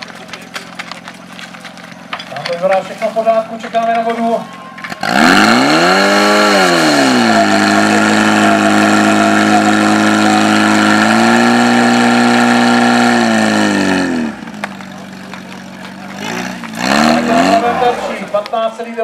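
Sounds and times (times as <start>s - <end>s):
pump engine running at high revs: 4.8s - 18.5s.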